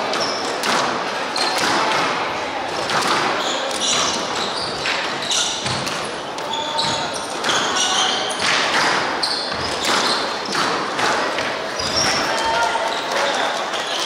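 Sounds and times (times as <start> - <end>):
squash ball struck by racquets: 0.0 - 6.1, 6.8 - 12.2
shoes squeaking on wooden floor: 3.3 - 10.8, 11.6 - 13.1.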